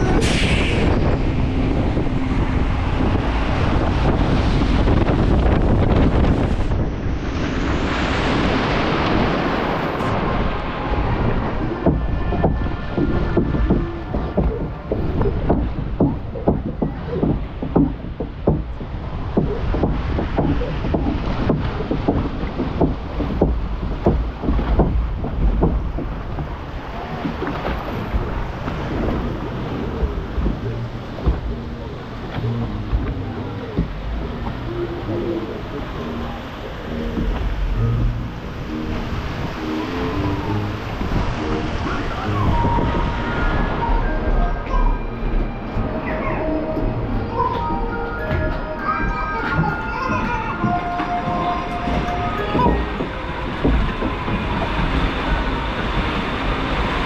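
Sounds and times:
water spraying: 0:00.0 - 0:48.8, 0:49.4 - 0:57.0
boat splashing down: 0:00.0 - 0:57.0
wind rushing over microphone: 0:00.0 - 0:57.0.

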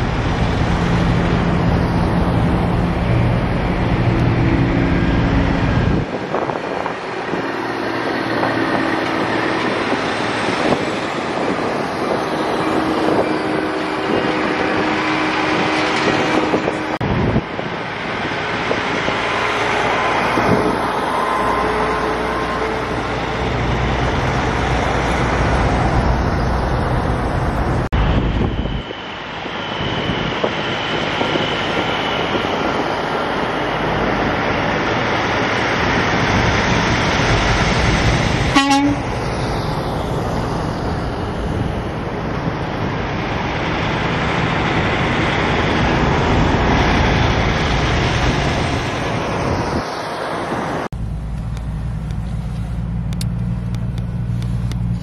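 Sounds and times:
diesel trucks passing: 0:00.0 - 0:55.0
truck horn toot: 0:38.5 - 0:39.2.

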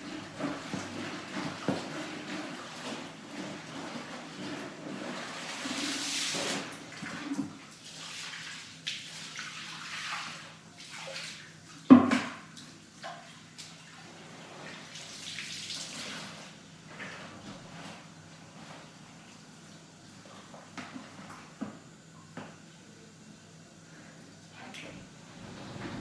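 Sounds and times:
hose water splashing into bucket: 0:00.0 - 0:19.4.

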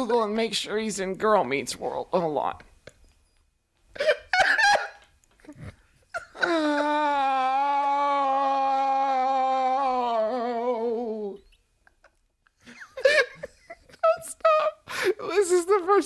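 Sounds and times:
man wailing: 0:06.2 - 0:11.4.

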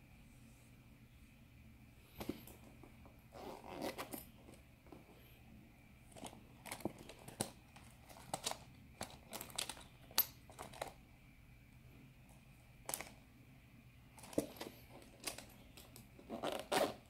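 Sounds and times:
zipper pulled open: 0:03.3 - 0:04.3, 0:16.3 - 0:17.0
small objects clicking and rustling: 0:06.1 - 0:11.0, 0:14.2 - 0:16.8.

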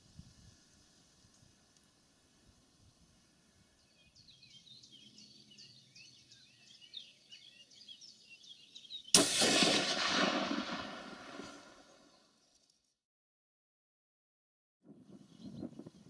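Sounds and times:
small birds chirping: 0:00.4 - 0:09.2, 0:15.1 - 0:16.0
rifle shot echoing: 0:09.2 - 0:12.1.

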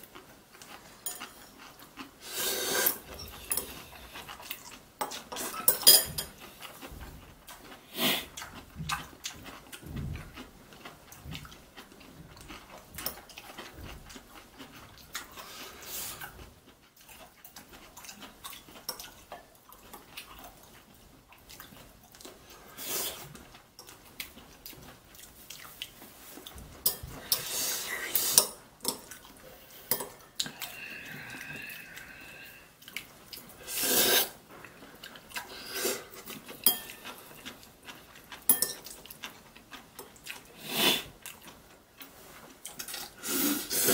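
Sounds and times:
chopsticks clicking on ceramic bowls: 0:29.9 - 0:30.7, 0:38.5 - 0:39.0.

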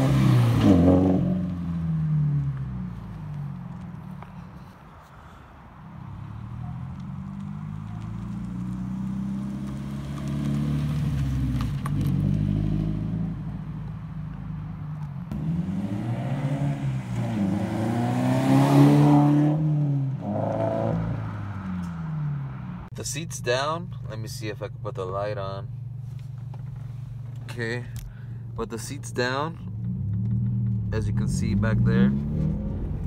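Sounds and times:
car engine accelerating past: 0:00.0 - 0:02.9, 0:06.2 - 0:13.5, 0:15.3 - 0:22.9, 0:29.8 - 0:33.0.

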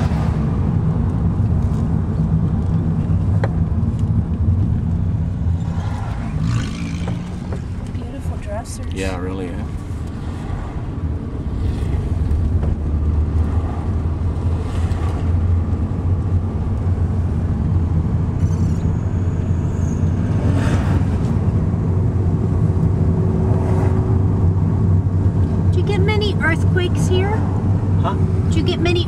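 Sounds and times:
car engine and road hum: 0:00.0 - 0:29.0
rushes of noise: 0:04.6 - 0:08.9.

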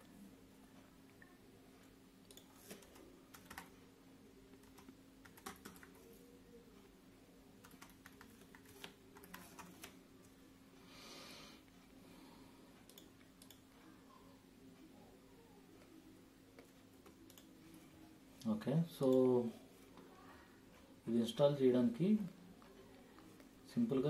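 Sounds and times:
faint keyboard typing: 0:00.8 - 0:06.9, 0:07.6 - 0:10.4, 0:12.8 - 0:20.9.

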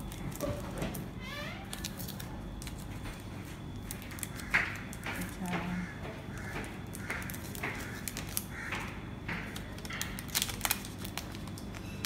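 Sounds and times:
packaging rustling: 0:09.5 - 0:12.0.

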